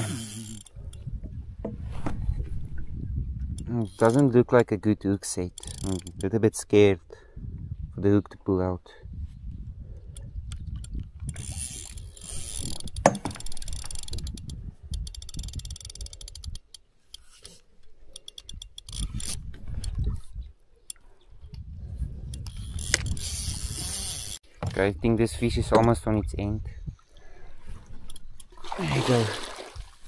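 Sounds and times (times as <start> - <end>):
fishing reel clicking: 0.0 - 1.1, 3.6 - 4.4, 5.2 - 6.3, 10.1 - 20.0, 22.2 - 24.4.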